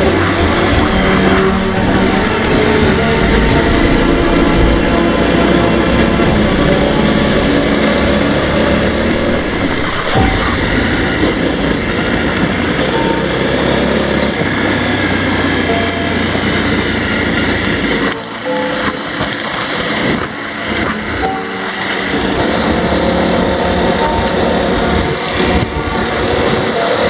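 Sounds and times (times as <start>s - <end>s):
wind rushing: 0.0s - 15.6s
motorcycle engine running: 0.0s - 17.8s.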